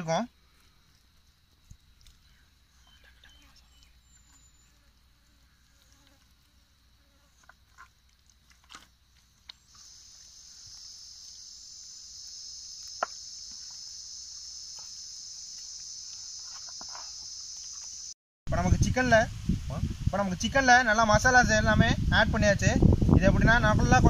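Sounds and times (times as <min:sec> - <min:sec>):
insect buzzing call: 0:00.5 - 0:07.9, 0:09.3 - 0:18.2.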